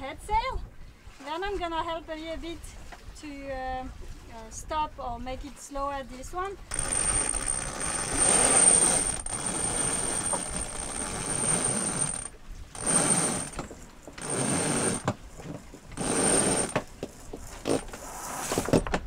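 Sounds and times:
sail line rasping through hardware: 6.7 - 18.9.

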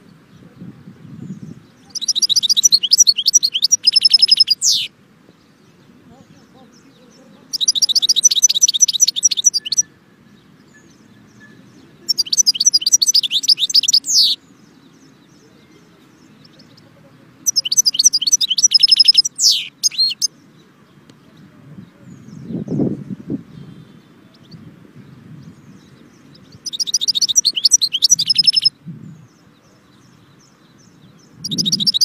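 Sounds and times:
finch twittering trills: 1.3 - 20.6, 23.4 - 32.0.

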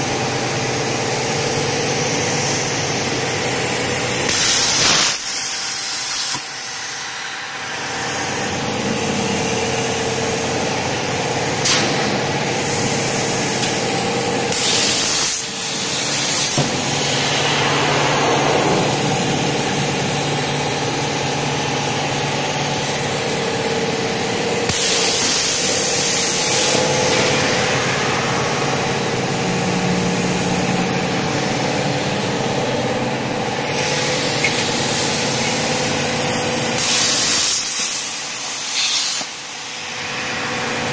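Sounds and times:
plasma cutter arc hissing: 0.1 - 32.4, 33.6 - 40.5
steady hum: 8.4 - 24.7, 25.3 - 33.4.

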